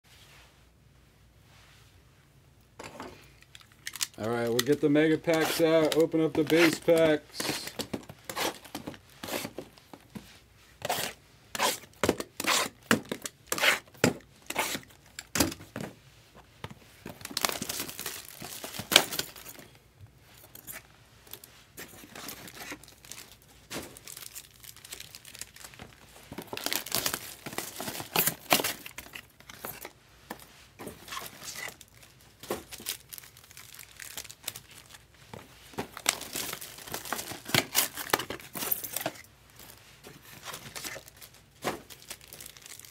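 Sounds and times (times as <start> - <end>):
foil wrappers tearing and crinkling: 3.5 - 9.8, 10.9 - 15.3, 17.1 - 19.6, 21.3 - 30.0, 30.9 - 35.2, 35.8 - 42.9.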